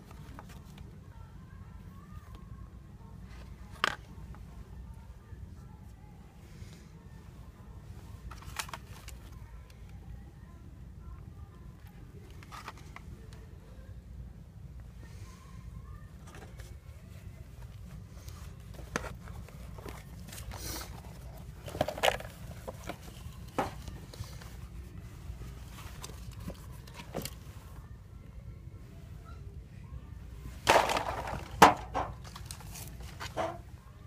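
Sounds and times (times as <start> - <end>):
steady low hum: 0.0 - 34.0
masks rustling and knocking: 30.6 - 33.7.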